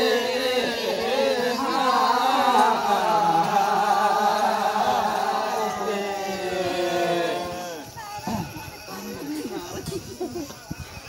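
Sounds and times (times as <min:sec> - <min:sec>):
voices singing unaccompanied chant: 0:00.0 - 0:11.0.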